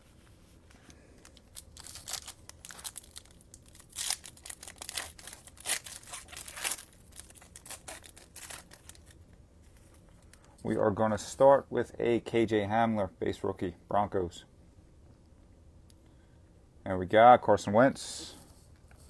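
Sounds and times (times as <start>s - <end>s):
card pack wrapper tearing: 1.2s - 9.2s.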